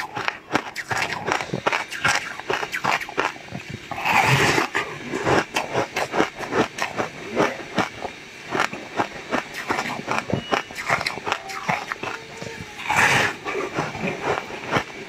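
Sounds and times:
person chewing: 0.0 - 15.0.

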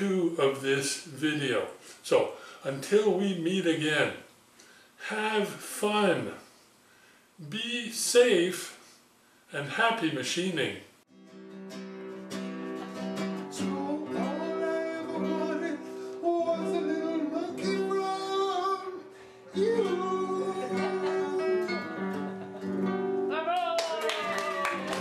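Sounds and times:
acoustic guitar: 11.1 - 25.0
person singing: 13.5 - 22.6.

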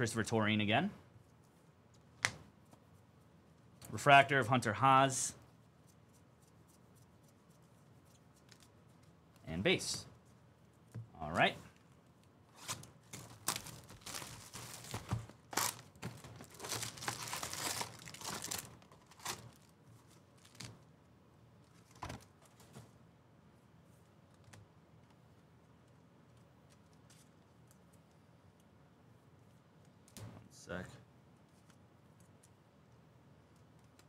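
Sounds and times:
wrapper and cardboard tearing: 12.6 - 19.7.

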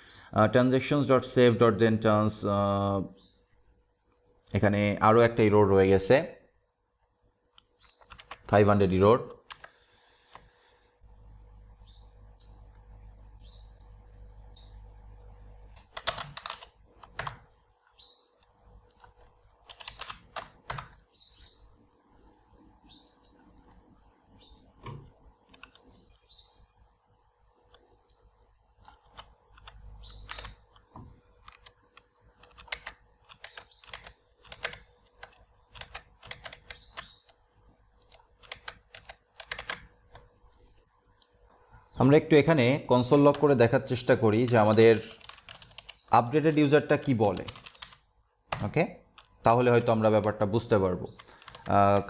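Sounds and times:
computer keyboard typing: 7.6 - 8.7, 9.4 - 10.5, 15.7 - 17.7, 18.4 - 21.1, 24.8 - 26.3, 27.7 - 41.4, 43.2 - 49.8, 51.1 - 52.0.

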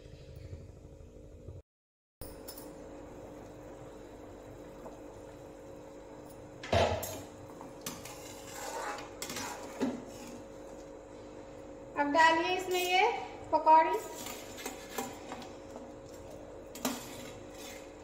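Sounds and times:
steel spoon stirring in pan: 7.8 - 10.5, 13.9 - 15.5, 16.7 - 18.0.

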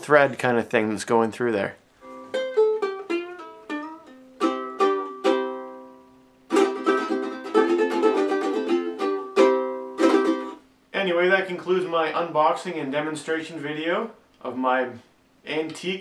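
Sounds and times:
ukulele plucked notes: 2.0 - 10.6
ukulele strumming: 2.0 - 10.6.

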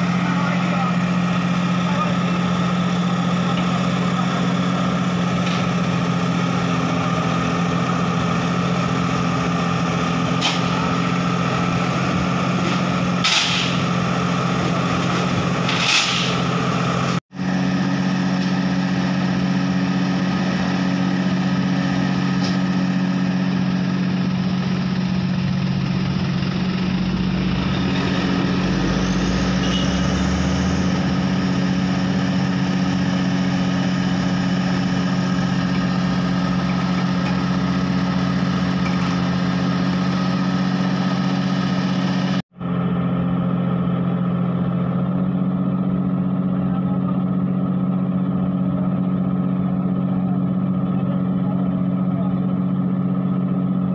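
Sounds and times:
diesel engine idling: 0.0 - 53.9
motorcycle passing: 26.1 - 32.5.

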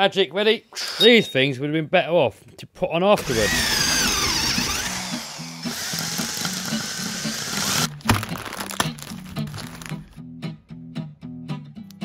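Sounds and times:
electric screwdriver whine: 3.2 - 7.9
guitar music: 6.5 - 12.0
plastic bag crinkling: 7.9 - 10.2.

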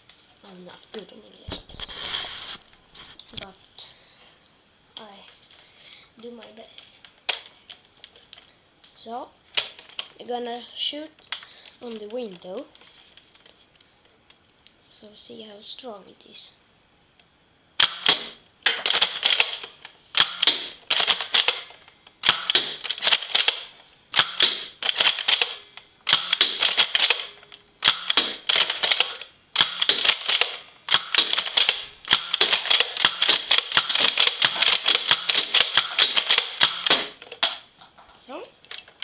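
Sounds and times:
toy blaster plastic clacks: 17.8 - 37.6.

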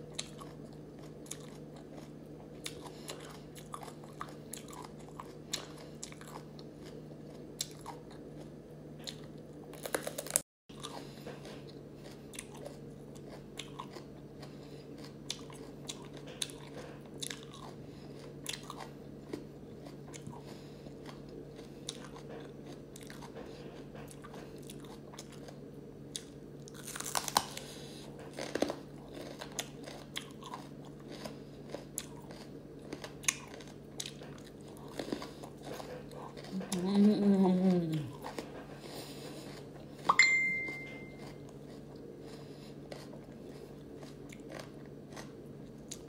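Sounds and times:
crisp crunching of chewing: 0.0 - 46.0
steady low hum: 0.0 - 46.0.

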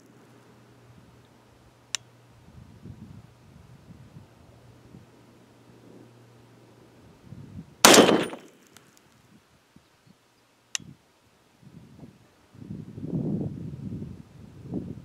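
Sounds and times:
rifle shots: 7.8 - 8.6.

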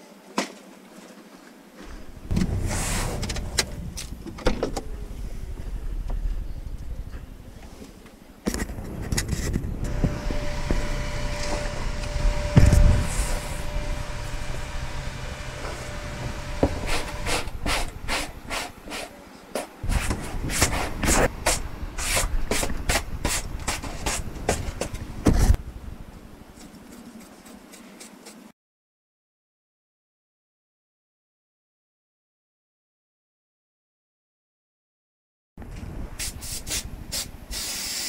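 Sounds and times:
handling noises: 0.2 - 25.6
steady background hum: 1.7 - 28.3
thump: 2.3 - 3.8
brush scrubbing foam: 13.0 - 19.2, 26.7 - 28.5.

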